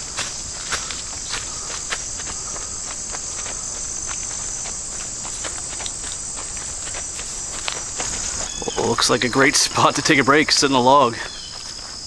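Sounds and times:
footsteps on leafy dirt trail: 0.0 - 12.0
high-pitched insect chorus: 0.0 - 12.0.

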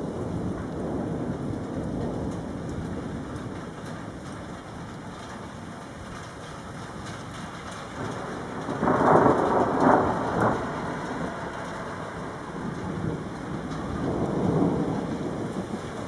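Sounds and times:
thunder rumbling: 0.0 - 16.0.

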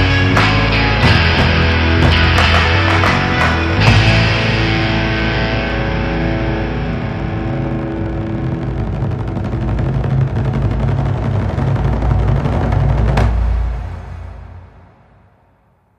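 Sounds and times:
electric guitar chord held: 0.0 - 9.6
low bass line: 0.0 - 15.0.

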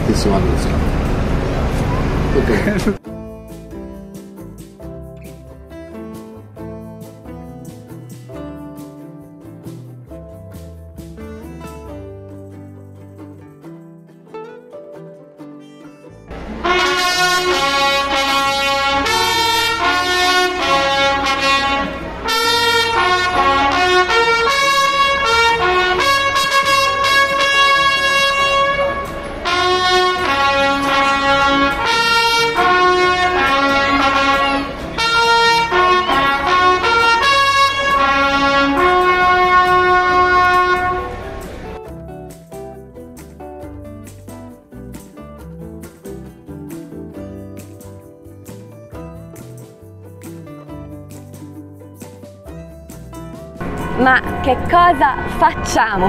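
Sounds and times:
trumpets playing held notes: 15.8 - 41.8, 53.6 - 55.8.

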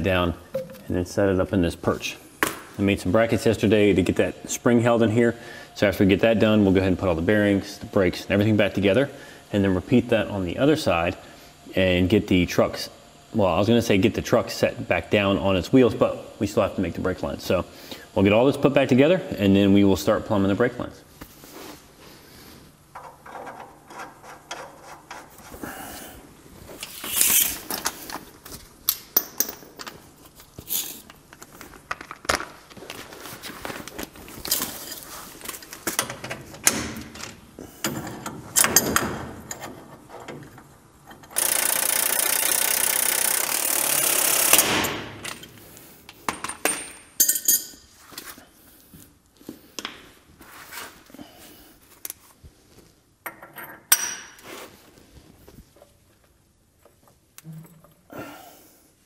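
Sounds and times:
impact wrench hammering: 0.5 - 0.9, 41.4 - 45.2
metal tools clinking and knocking: 46.3 - 47.8.

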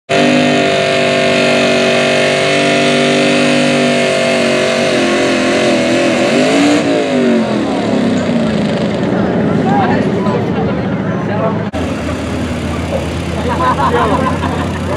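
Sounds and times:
truck engine revving under load: 0.1 - 14.9.

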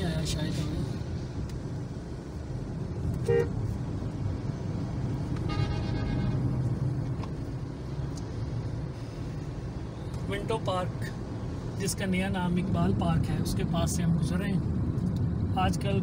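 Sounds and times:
engine and tyres rumbling: 0.0 - 16.0
short vehicle horn toot: 3.2 - 3.5, 5.4 - 6.4
long high horn blast: 3.2 - 3.6, 5.5 - 6.4.

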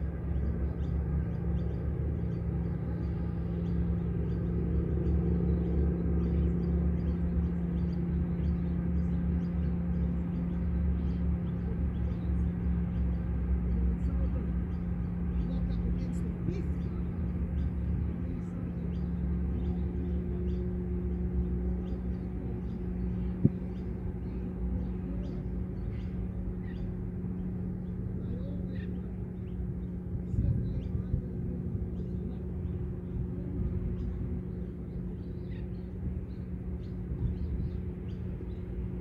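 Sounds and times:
low rumble and hum: 0.0 - 39.0
bird chirps: 31.8 - 39.0.

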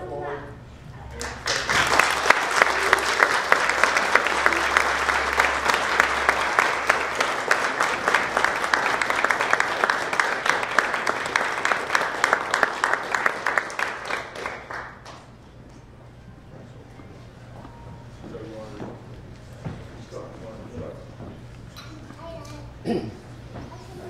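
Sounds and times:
audience applauding: 1.2 - 15.4.

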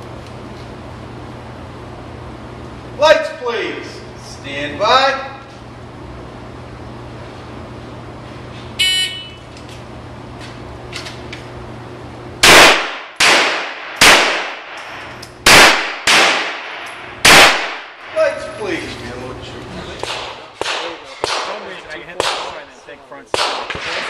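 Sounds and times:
low ventilation hum: 0.0 - 24.0
shot timer beep: 8.8 - 9.4
gunshots echoing indoors: 12.4 - 18.1, 20.0 - 21.6, 22.2 - 22.6, 23.3 - 24.0.

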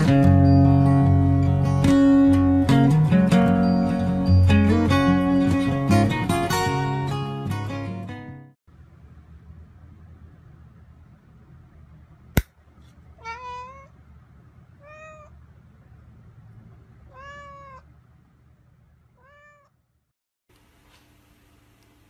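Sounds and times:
cat meowing: 13.2 - 14.0, 14.8 - 15.4, 17.1 - 17.9, 19.2 - 19.8.

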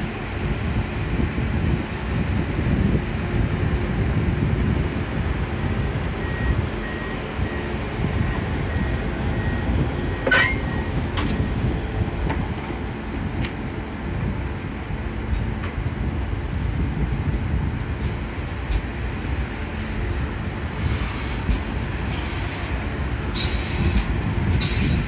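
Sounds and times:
brief high squeak: 0.0 - 0.6, 9.5 - 11.4, 23.4 - 25.0
train wheels rumbling on rails: 0.0 - 25.0.

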